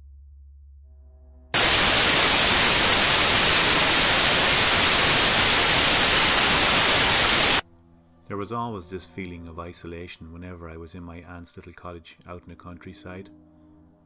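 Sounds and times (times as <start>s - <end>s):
television static hiss: 1.6s - 7.6s
faint ambient drone music: 7.6s - 14.0s.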